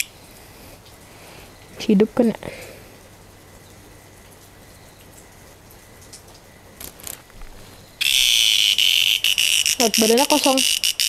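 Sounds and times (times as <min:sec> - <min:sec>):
cicada distress buzz: 0:06.9 - 0:11.0.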